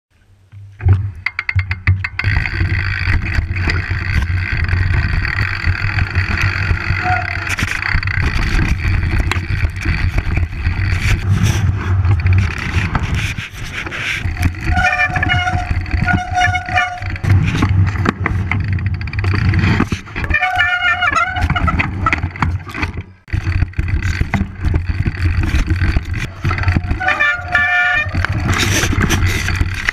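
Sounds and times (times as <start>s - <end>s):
bike tyres on trail: 0.5s - 29.9s.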